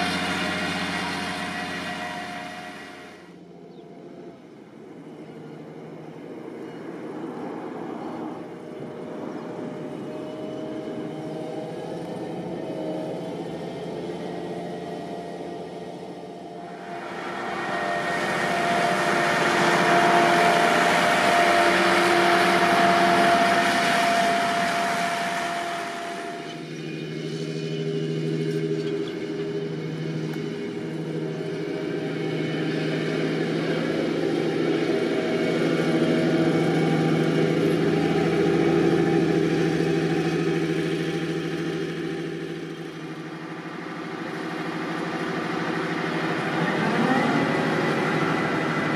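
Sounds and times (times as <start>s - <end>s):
diesel engine running: 0.0s - 48.9s
steady machine whine: 0.0s - 48.9s.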